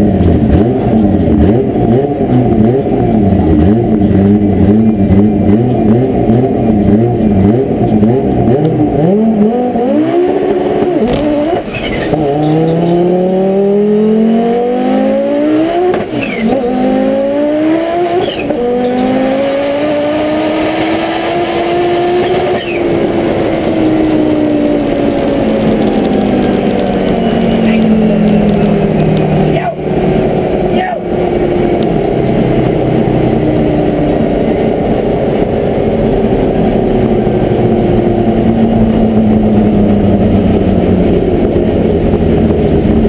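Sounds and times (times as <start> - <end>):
turbocharged car engine revving: 0.0 - 43.0.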